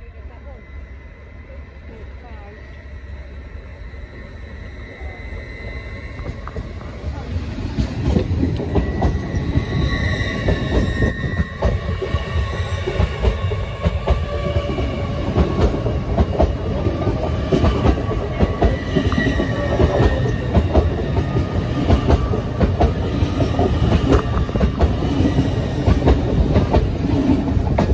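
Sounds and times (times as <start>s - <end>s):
train low rumble: 0.0s - 27.9s
high wheel squeal: 2.5s - 7.0s, 8.6s - 12.9s, 18.2s - 21.4s
train wheels clattering over rail joints: 7.7s - 27.9s.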